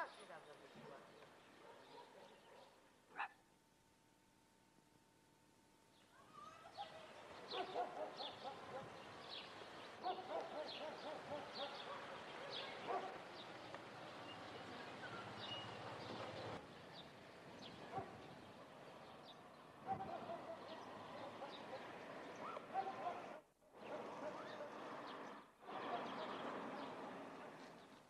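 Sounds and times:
outdoor background hiss: 0.0 - 28.0
faint steady hum: 2.5 - 6.7
small birds chirping: 6.0 - 27.0.

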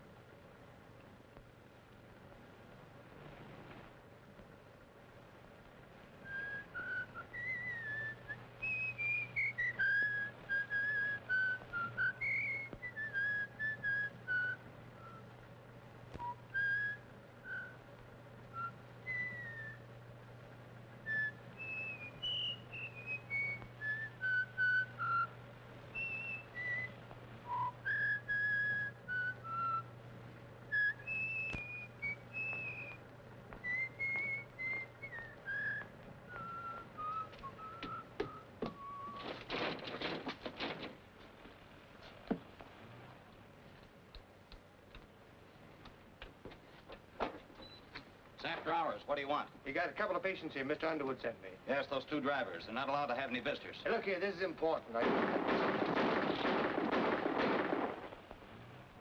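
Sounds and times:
steady low hum: 0.0 - 59.0
person whistling a tune: 6.2 - 15.2, 16.2 - 17.8, 18.5 - 19.9, 21.1 - 29.9, 30.7 - 33.0, 33.6 - 39.3.

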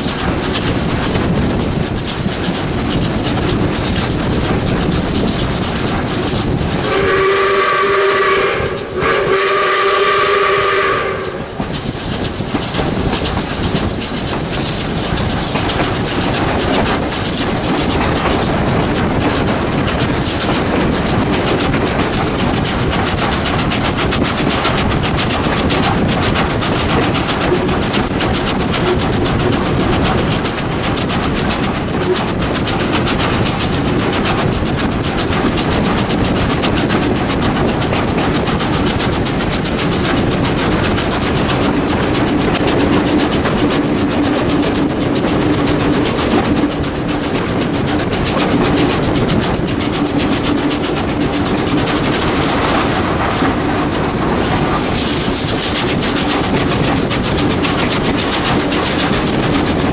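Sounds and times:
steam train running: 0.0 - 59.9
steam locomotive whistle blasts: 6.8 - 11.6.

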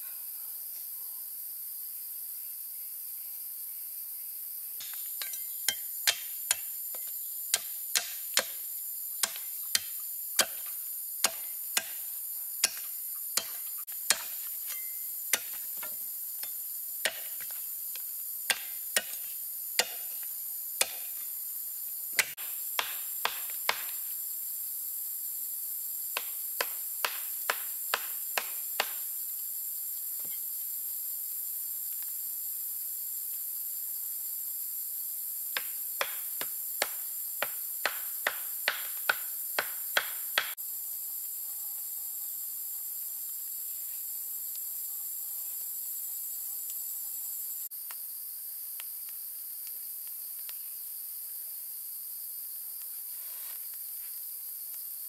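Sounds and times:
high insect drone: 0.0 - 55.0
cleaver chopping wood: 4.8 - 17.6, 18.5 - 20.2, 20.8 - 21.2, 22.2 - 24.0, 26.2 - 29.0, 35.6 - 40.6.

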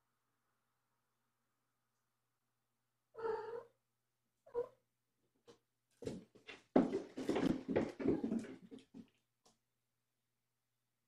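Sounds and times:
cat meowing: 3.2 - 3.8
cats thumping and scuffling: 5.9 - 9.2.

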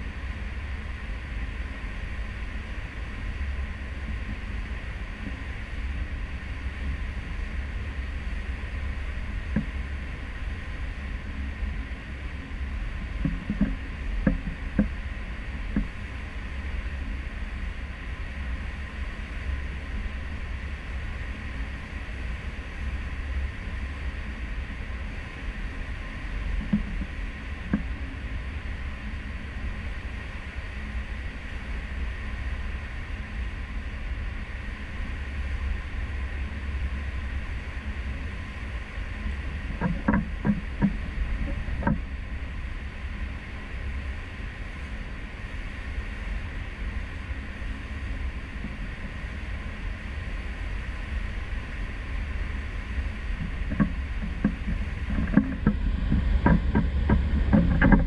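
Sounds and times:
ship low rumble with hiss: 0.0 - 58.0.

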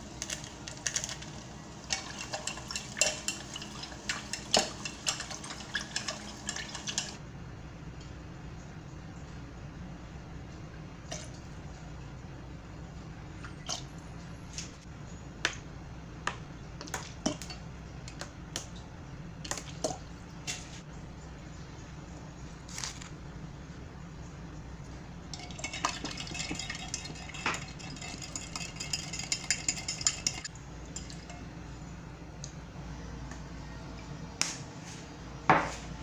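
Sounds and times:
steady low hum: 0.0 - 36.0
spoon clinking against glass jug: 1.9 - 7.2, 25.3 - 31.5.

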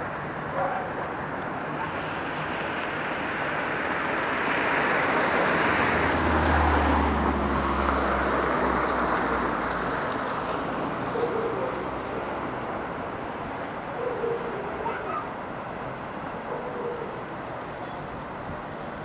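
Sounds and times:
vehicle rushing past: 1.6 - 13.3.

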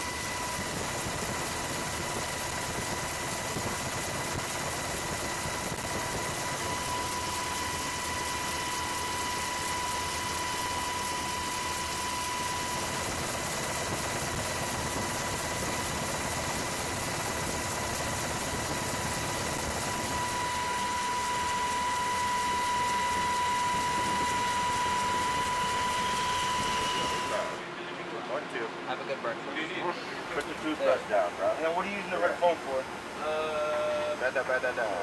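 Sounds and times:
engine drone: 0.0 - 27.7
high whine: 0.0 - 27.7.

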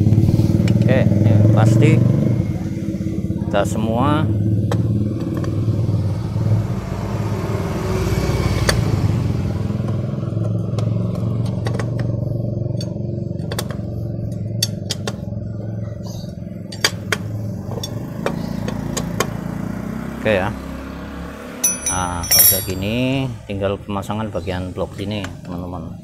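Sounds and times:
wrench metallic clicks: 21.6 - 22.8.

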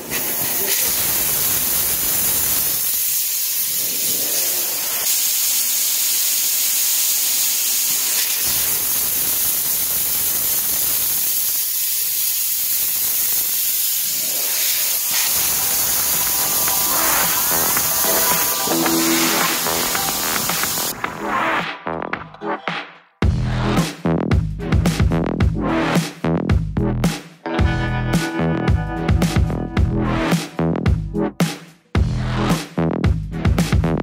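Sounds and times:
air hissing from tire valve: 0.0 - 20.9.

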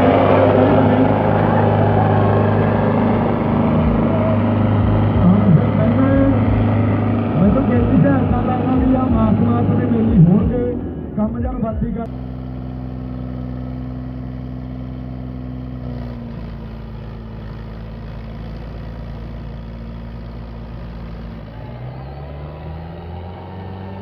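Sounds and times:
tractor diesel engines at high revs: 0.0 - 24.0.

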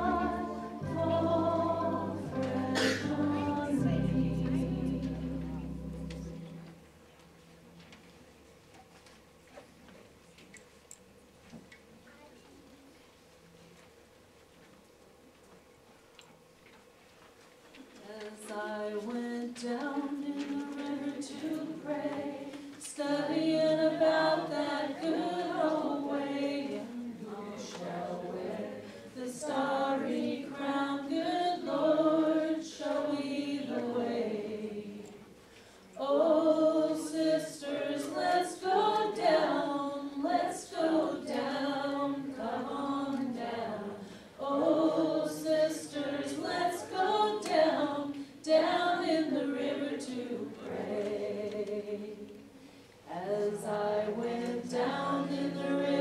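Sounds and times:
group singing a hymn: 0.0 - 6.8, 18.1 - 56.0.

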